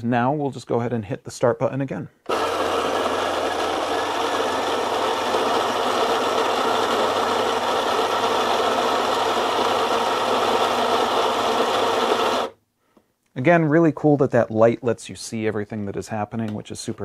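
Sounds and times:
coffee beans grinding: 2.3s - 12.6s
coffee grinder motor hum: 2.3s - 12.6s.

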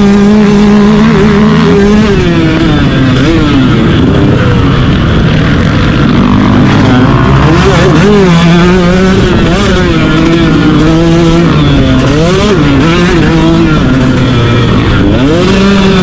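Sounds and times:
dirt bike engine revving: 0.0s - 16.0s.

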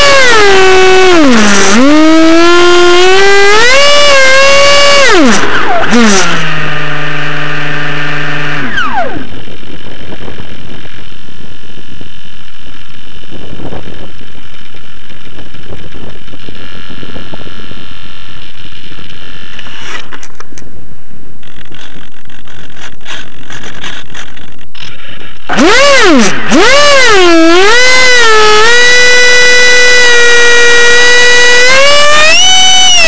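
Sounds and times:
electric ducted fan whining: 0.0s - 33.0s
low hum: 0.0s - 33.0s
clicks and rustles: 19.6s - 20.7s, 21.4s - 25.5s.

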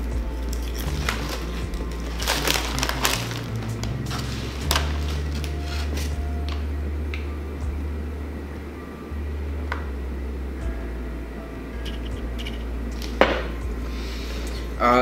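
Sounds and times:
background music with bass: 0.0s - 15.0s
chewing crunchy potato chips: 0.4s - 5.5s
chip bag crackle: 0.4s - 6.2s.

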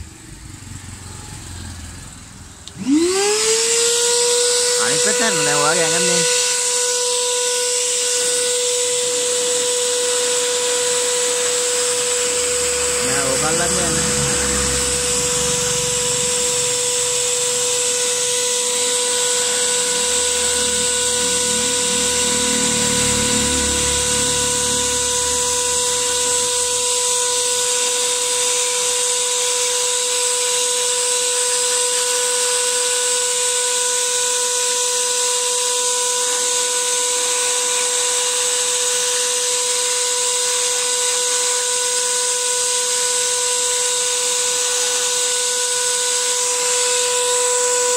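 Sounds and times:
cleaning tool motor whine: 0.0s - 47.9s
air rushing from nozzle: 7.9s - 27.9s
low rumble: 12.1s - 27.2s.

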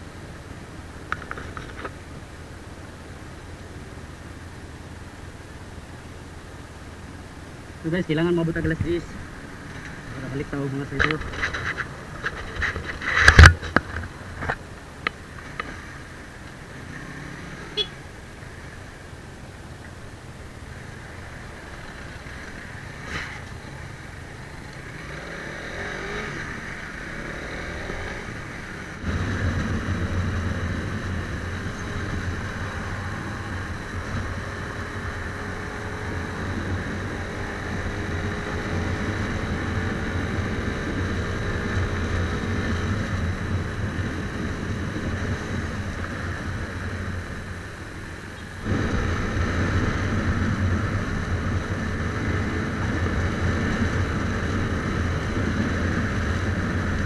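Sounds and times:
motorcycle engine accelerating: 21.4s - 47.2s, 48.6s - 57.0s.

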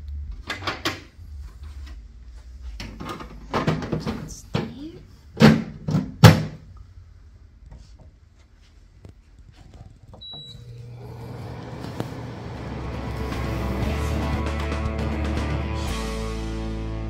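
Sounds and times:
fan humming: 9.3s - 16.0s.

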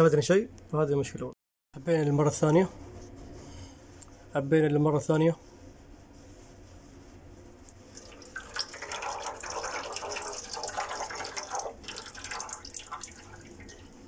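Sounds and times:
oil pouring and gurgling: 7.8s - 14.0s.

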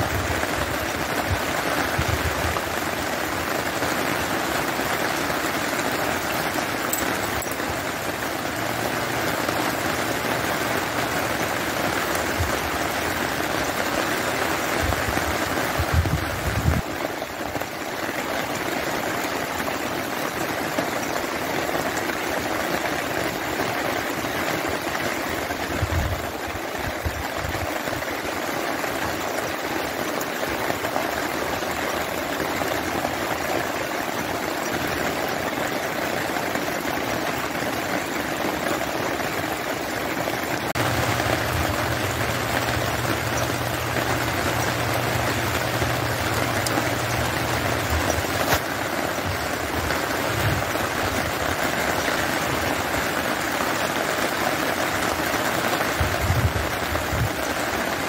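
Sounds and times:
steady rain: 0.0s - 58.0s
water running: 5.2s - 13.7s, 40.8s - 48.7s.

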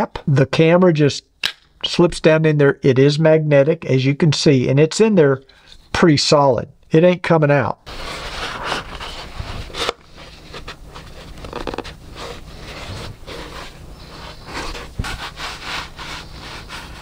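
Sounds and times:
sharp scrape: 7.9s - 17.0s.

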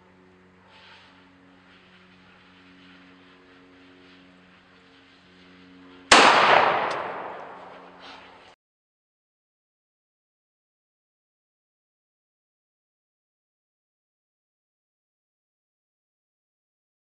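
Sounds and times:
pistol shot with echo: 6.1s - 7.9s.

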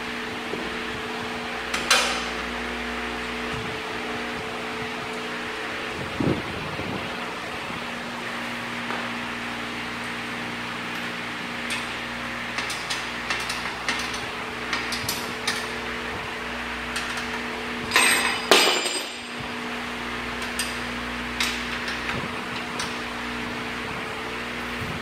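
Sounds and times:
steady low hum: 0.0s - 25.0s
wrench clinking on metal: 16.9s - 19.3s
metal clanks: 16.9s - 19.4s.

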